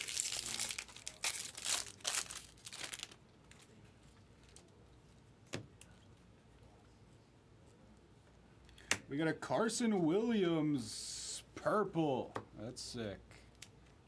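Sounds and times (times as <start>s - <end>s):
foil wrapper crinkling and tearing: 0.0s - 3.2s.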